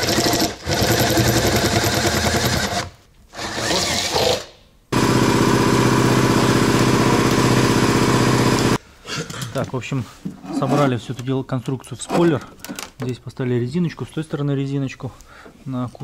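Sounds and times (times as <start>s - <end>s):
cordless drill running: 0.0s - 4.4s, 5.0s - 8.8s.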